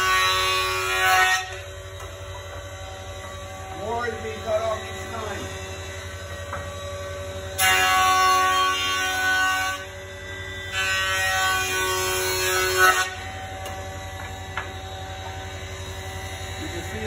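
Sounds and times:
jointer motor humming: 1.4 - 8.9.

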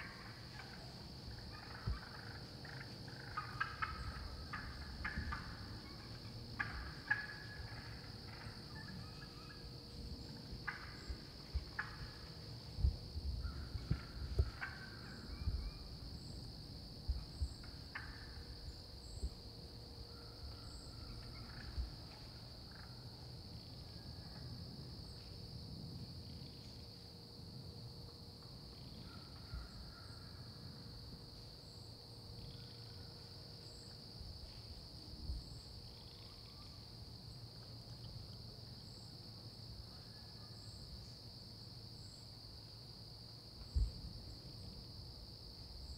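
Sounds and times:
crickets trilling: 0.0 - 45.9
hen turkey calls: 1.5 - 9.6, 13.5 - 15.3.

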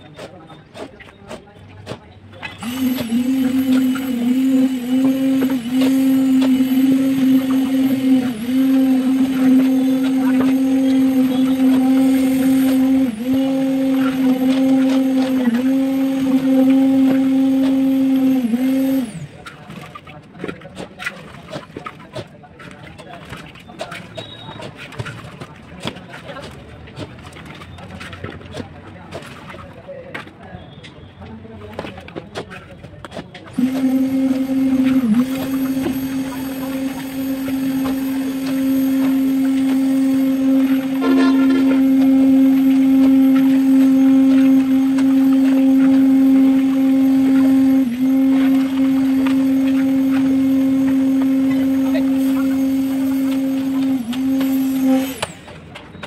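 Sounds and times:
shovels scraping concrete mix: 0.0 - 56.0
small motor humming: 2.4 - 19.5, 33.5 - 55.6.

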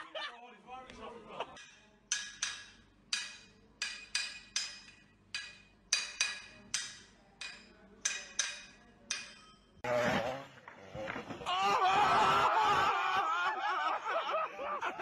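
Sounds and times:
hammer tapping metal blade: 1.6 - 9.8.

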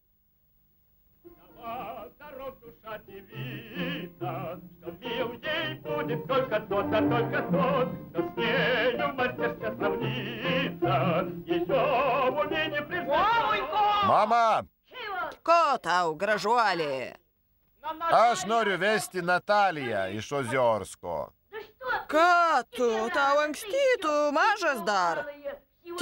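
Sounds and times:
operatic singing with heavy vibrato: 1.3 - 14.2
low instrumental accompaniment: 4.4 - 11.2.

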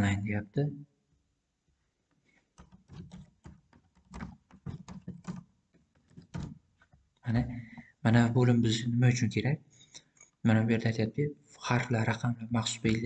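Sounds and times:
keyboard key clicks: 2.6 - 5.4.

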